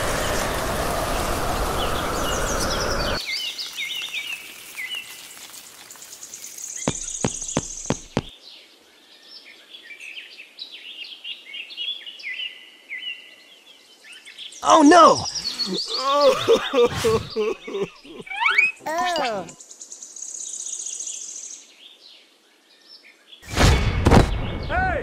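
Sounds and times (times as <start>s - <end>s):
loud steady hiss: 0.0s - 8.3s
small birds chirping and trilling: 1.4s - 23.4s.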